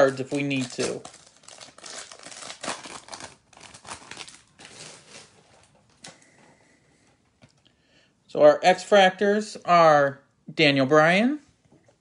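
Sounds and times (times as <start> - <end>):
foil wrapper crinkling: 0.0 - 6.1.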